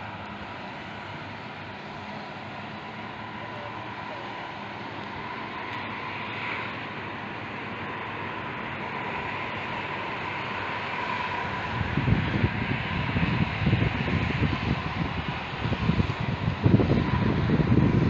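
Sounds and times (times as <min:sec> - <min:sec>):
faint steady whine: 0:00.0 - 0:18.0
wind gusts buffeting microphone: 0:00.0 - 0:18.0
wind hiss: 0:00.0 - 0:18.0.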